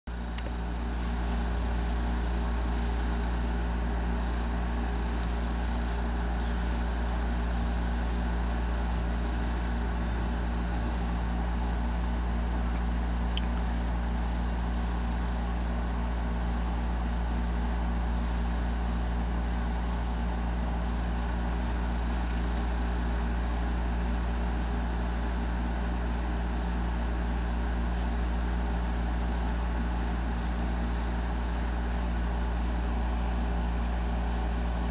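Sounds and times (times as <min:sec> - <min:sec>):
small tick: 0:13.3 - 0:13.6.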